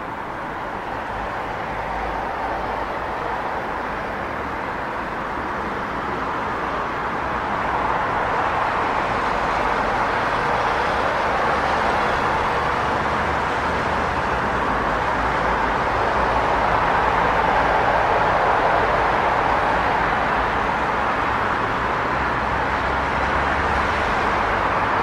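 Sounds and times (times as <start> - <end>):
city traffic roar: 0.0 - 25.0.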